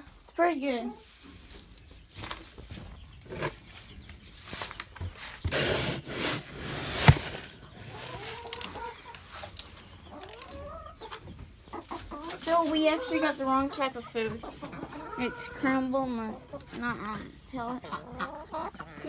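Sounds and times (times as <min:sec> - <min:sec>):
hens clucking: 0:00.0 - 0:19.0
plastic bins rustling: 0:01.5 - 0:09.8.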